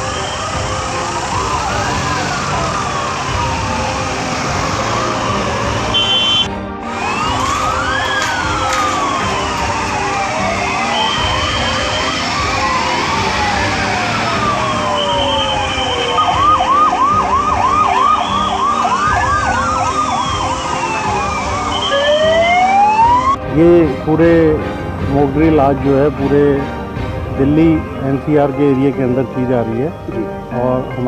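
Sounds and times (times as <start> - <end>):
siren fast yelp: 0.0 - 23.4
sirens wailing: 0.0 - 31.0.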